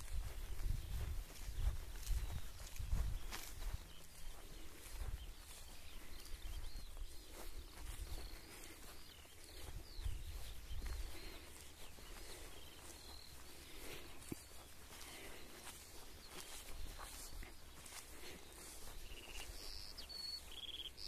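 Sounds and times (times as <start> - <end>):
birds chirping and warbling: 0.0 - 21.0
footsteps through grass: 0.0 - 21.0.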